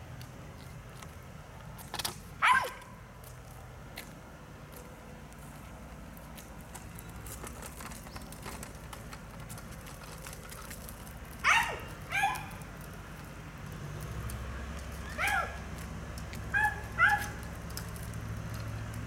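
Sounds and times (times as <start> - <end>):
dog barking: 2.4 - 2.9, 11.4 - 12.6, 15.1 - 15.6, 16.5 - 17.4.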